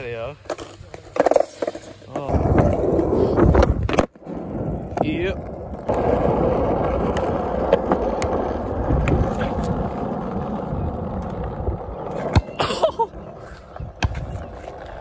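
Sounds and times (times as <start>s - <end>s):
skateboard rolling on asphalt: 0.0s - 15.0s.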